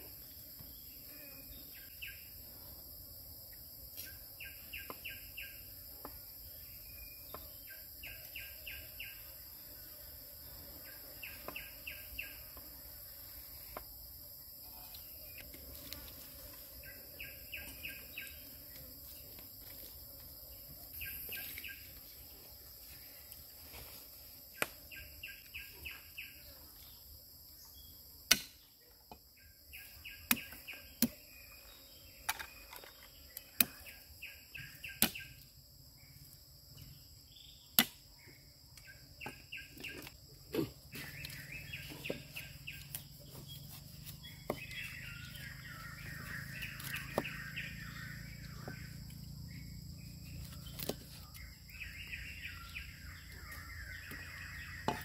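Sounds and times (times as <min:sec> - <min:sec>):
birds chirping and trilling: 0:04.1 - 0:13.0, 0:14.7 - 0:19.0, 0:20.8 - 0:22.3, 0:38.3 - 0:55.0.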